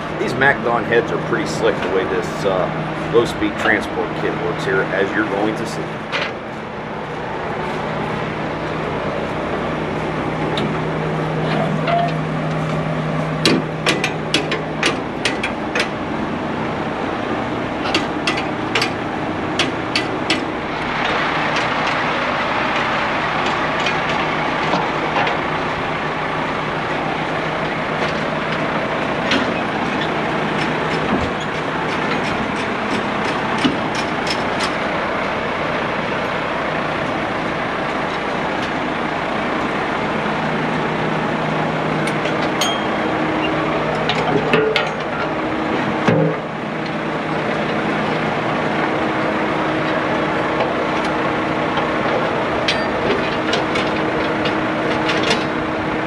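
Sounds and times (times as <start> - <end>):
large diesel engine running: 0.0 - 56.0
metal clicks and clanks: 11.4 - 12.8, 13.4 - 16.0, 17.8 - 22.1, 22.7 - 25.5, 29.2 - 34.9, 42.0 - 47.0, 51.8 - 55.6.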